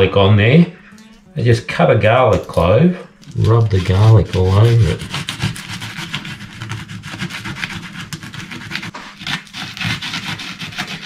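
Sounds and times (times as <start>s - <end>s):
garlic rasping on toast: 3.2s - 11.0s.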